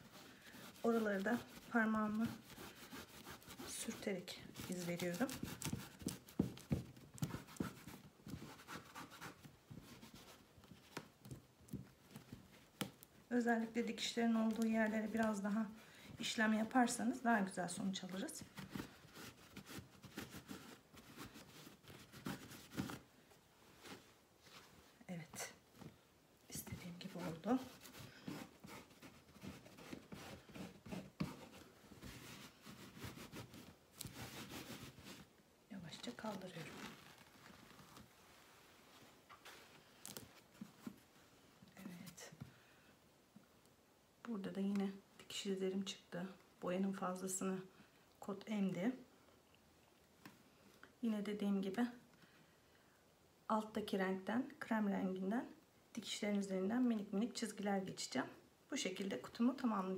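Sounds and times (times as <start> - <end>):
fabric rubbing on wooden box: 0.0 - 10.5, 26.7 - 35.3.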